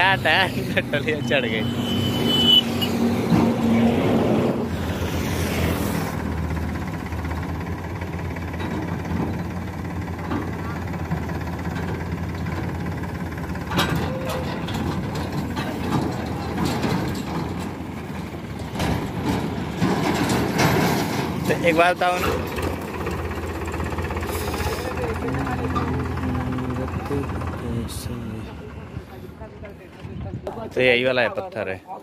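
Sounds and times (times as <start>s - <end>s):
tractor diesel engine under load: 0.0s - 30.0s.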